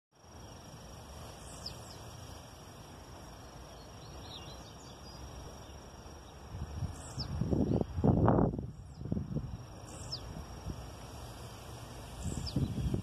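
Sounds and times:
high-pitched insect trill: 0.2 - 13.0.

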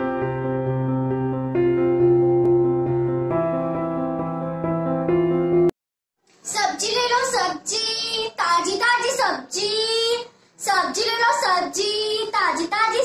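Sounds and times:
girl chanting street cry: 6.5 - 13.0.

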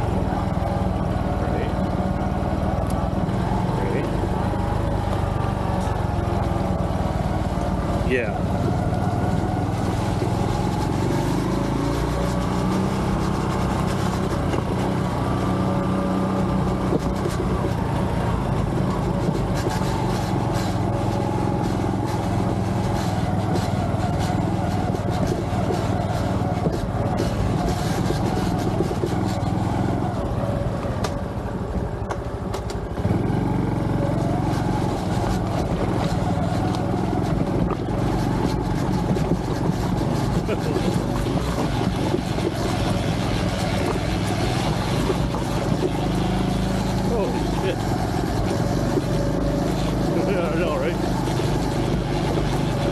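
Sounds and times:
motorcycle engine running: 0.0 - 52.9.

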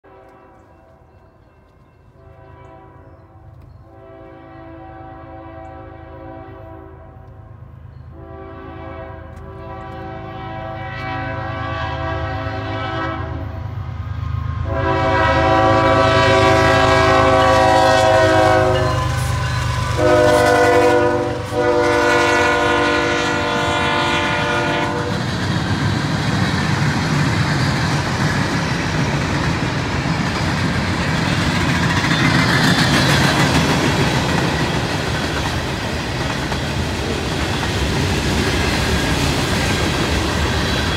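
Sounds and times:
train air horn blasts: 0.0 - 1.1, 2.2 - 13.7, 14.6 - 25.3
train rumbling past on rails: 0.1 - 40.9.

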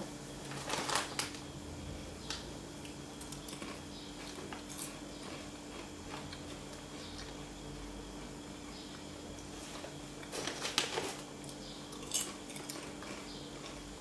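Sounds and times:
foil chip bag crackling: 0.4 - 1.4, 9.7 - 11.3
chewing crunches: 2.8 - 7.5, 11.4 - 14.0.

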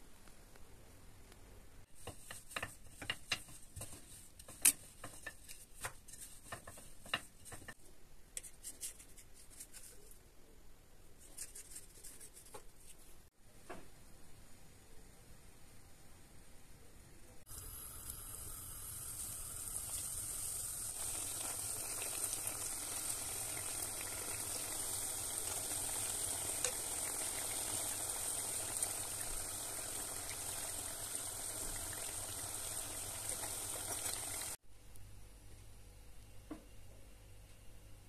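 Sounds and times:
hot oil sizzling: 17.5 - 34.6.

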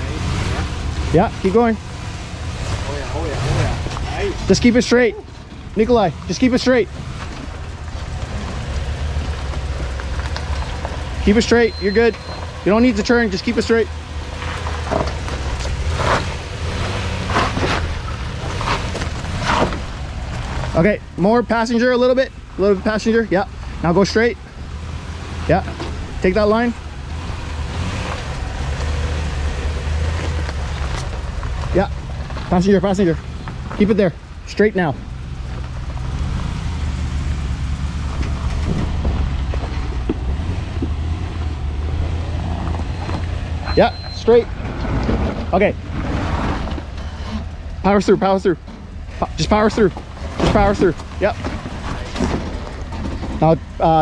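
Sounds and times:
engine running low: 0.0 - 54.0
tyres crunching over rock: 27.7 - 34.0.

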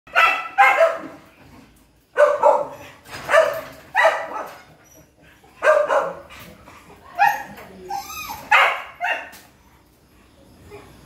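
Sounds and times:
dogs barking: 0.1 - 1.3, 2.1 - 7.6, 8.5 - 9.4.

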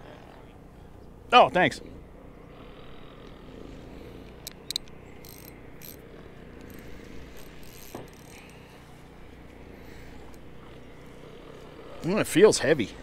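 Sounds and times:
faint outdoor hum: 0.0 - 13.0
light mechanical ticks: 4.2 - 8.9, 10.2 - 10.5
fishing reel clicks: 4.4 - 8.7.

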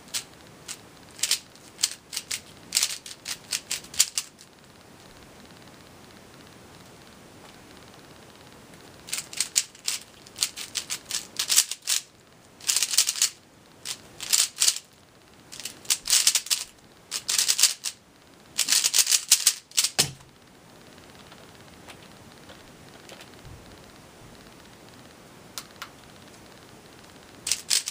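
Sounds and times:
plastic puzzle cube clicking: 0.1 - 4.4, 9.1 - 14.9, 15.5 - 18.0, 18.6 - 20.2, 27.4 - 27.9
dull thump: 20.0 - 20.3.

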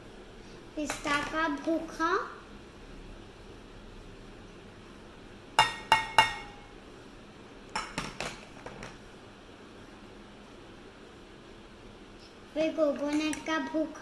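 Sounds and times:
glass bowl clinking: 5.6 - 6.7.

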